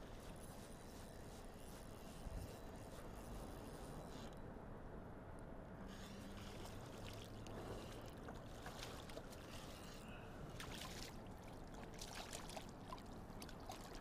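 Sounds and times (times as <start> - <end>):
water splashing and dripping: 10.6 - 14.0.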